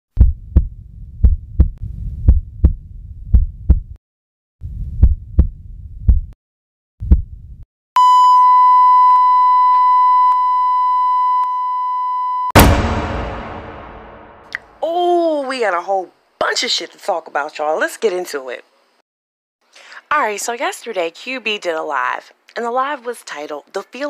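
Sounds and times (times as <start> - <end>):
heartbeat thumps: 0.2 - 4.0, 4.6 - 6.4, 7.0 - 7.6
heart monitor flatline beep: 8.0 - 12.6.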